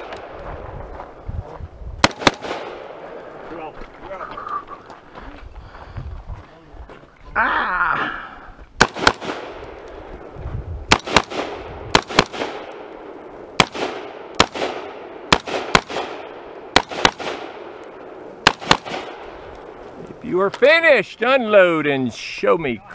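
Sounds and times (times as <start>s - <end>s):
rifle shots with echo: 2.0s - 3.4s, 8.8s - 10.1s, 10.9s - 19.8s.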